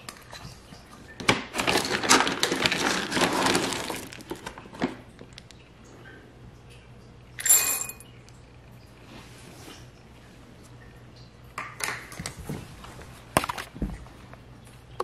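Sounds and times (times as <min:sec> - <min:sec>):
plastic bag crinkling: 0:01.5 - 0:05.5
kibble rattling: 0:01.6 - 0:05.0.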